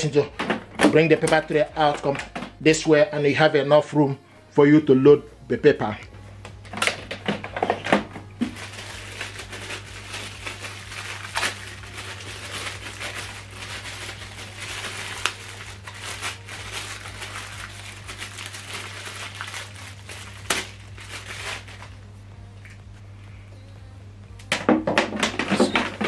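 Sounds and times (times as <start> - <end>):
steady low hum: 4.1 - 24.6
plastic bag crinkling: 8.4 - 22.0.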